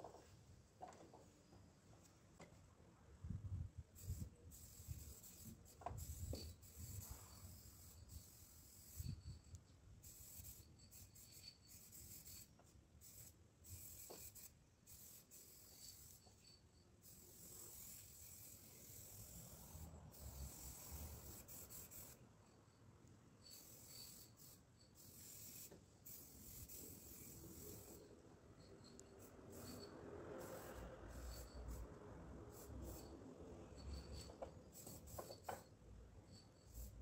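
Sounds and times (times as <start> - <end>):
spray paint can hissing: 3.9 - 9.4, 10.0 - 22.2, 23.5 - 28.2, 29.2 - 31.9, 32.5 - 33.1, 33.8 - 35.7, 36.6 - 37.0.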